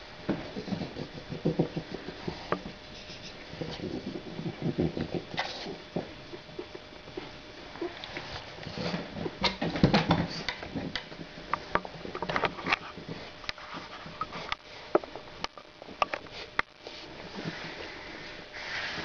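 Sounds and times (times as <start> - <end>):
dog sniffing and snuffling: 0.4 - 10.8.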